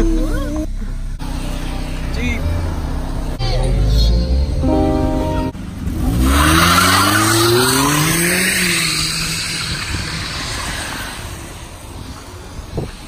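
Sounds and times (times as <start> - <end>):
car engine revving: 0.0 - 13.0
tyres rushing on wet street: 5.6 - 13.0.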